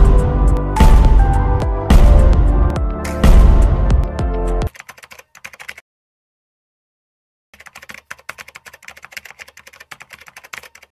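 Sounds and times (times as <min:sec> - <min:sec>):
keyboard typing: 0:04.6 - 0:05.8, 0:07.6 - 0:11.0.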